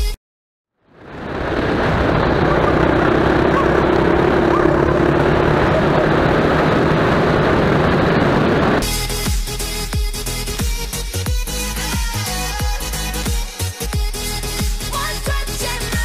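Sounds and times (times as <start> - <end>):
road noise: 0.8 - 8.8
quad bike engine running: 0.9 - 8.8
wind rushing: 1.1 - 8.8.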